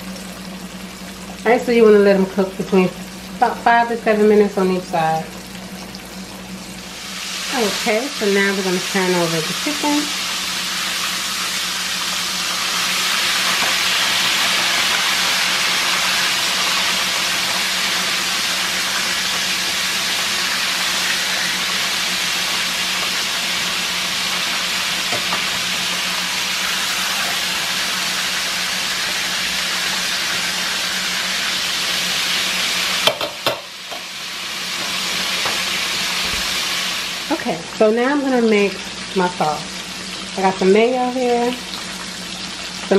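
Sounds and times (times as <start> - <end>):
oil sizzling while deep-frying: 0.0 - 42.9.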